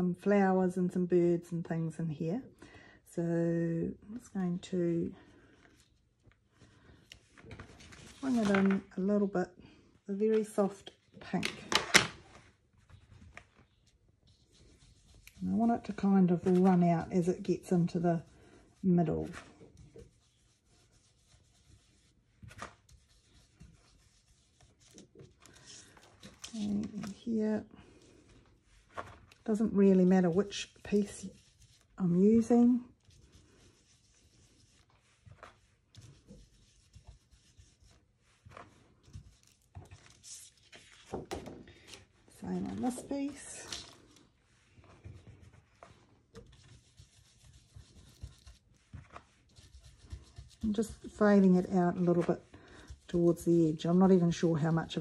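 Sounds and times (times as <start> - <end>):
foam tool rubbing on paper: 14.3 - 26.0, 29.5 - 40.7, 44.5 - 54.4.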